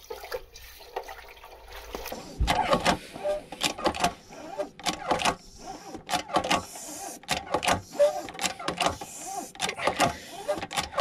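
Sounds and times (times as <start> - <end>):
hand pump clacking and creaking: 2.5 - 11.0.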